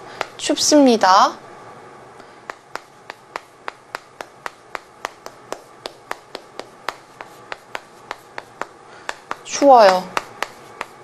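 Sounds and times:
chalk tapping on blackboard: 0:00.2 - 0:00.4, 0:02.4 - 0:11.0.

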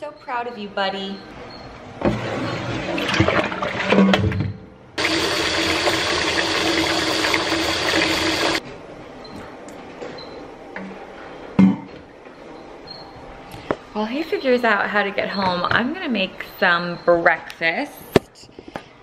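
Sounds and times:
faucet running into sink: 0:05.0 - 0:08.6.

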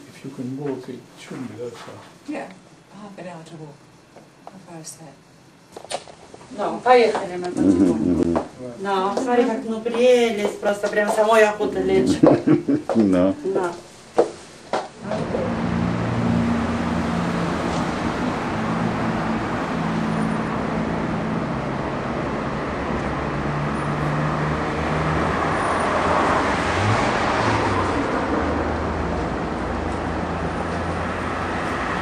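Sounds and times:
car engine hum: 0:15.0 - 0:32.0.

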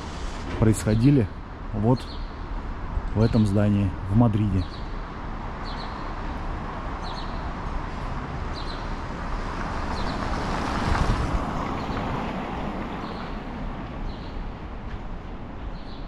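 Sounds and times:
city street traffic: 0:00.0 - 0:16.0
vehicle passing: 0:07.8 - 0:14.2.

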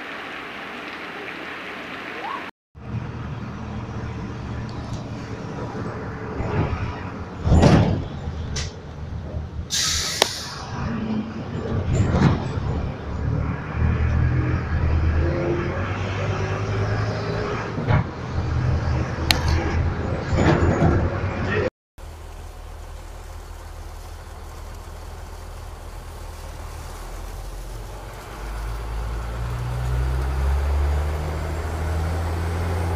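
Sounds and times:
bus engine humming: 0:02.8 - 0:32.9
bus body rattling: 0:04.7 - 0:09.7, 0:11.4 - 0:13.1, 0:19.5 - 0:21.7
air hiss: 0:09.7 - 0:10.7.

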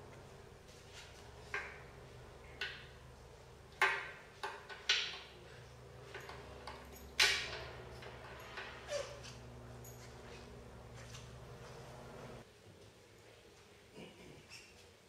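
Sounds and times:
metal lock clicks and clanks: 0:06.1 - 0:10.0.

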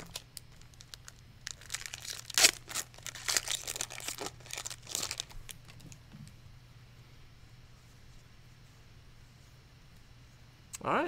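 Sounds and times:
foil wrapper tearing and crinkling: 0:00.0 - 0:05.8
foil wrapper crackling rustles: 0:00.0 - 0:06.0.

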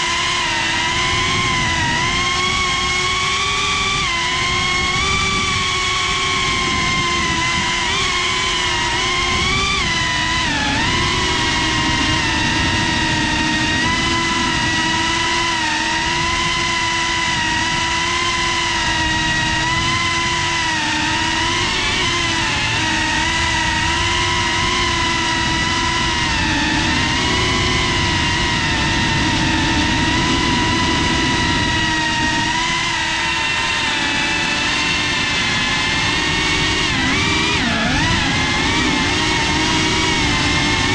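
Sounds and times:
drone motors buzzing: 0:00.0 - 0:40.9.

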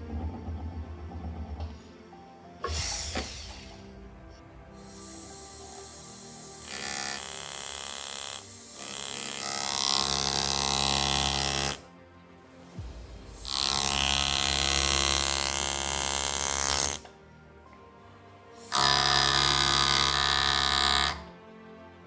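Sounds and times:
rotary tool whining: 0:04.9 - 0:11.8.

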